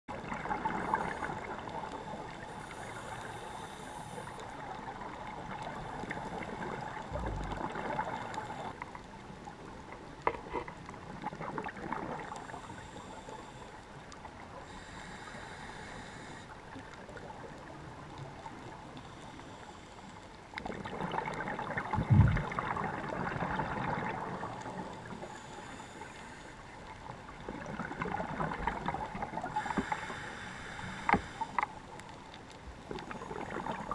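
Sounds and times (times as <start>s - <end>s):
regulator inhale hiss: 1.0s - 4.8s, 12.4s - 14.0s, 14.6s - 16.7s, 19.0s - 20.3s, 24.9s - 26.8s, 29.4s - 31.8s
exhaust bubbles gurgling: 5.5s - 8.8s, 20.6s - 24.8s
short low thump: 22.0s - 22.5s.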